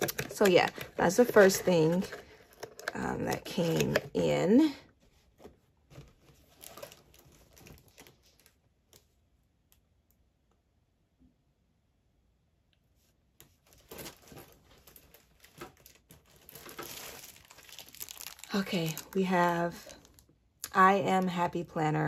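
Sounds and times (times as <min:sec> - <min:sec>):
packaging crinkling: 0:00.0 - 0:04.1, 0:05.9 - 0:09.2, 0:13.6 - 0:20.3.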